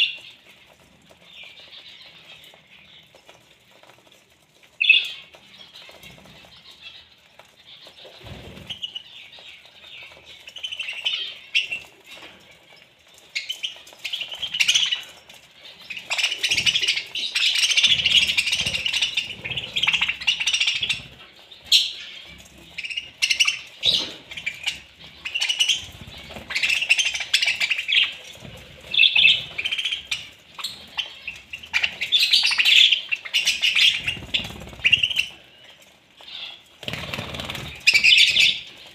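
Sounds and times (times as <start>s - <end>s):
budgerigars chattering and chirping: 4.8s - 12.5s, 13.3s - 38.9s
wing flutters: 13.3s - 35.5s, 36.7s - 38.9s.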